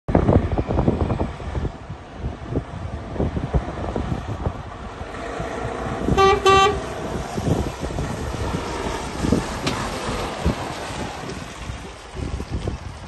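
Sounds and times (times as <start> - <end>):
truck diesel engine rumbling: 0.1 - 13.0
wind buffeting microphone: 0.1 - 13.0
truck horn toots: 6.1 - 7.0.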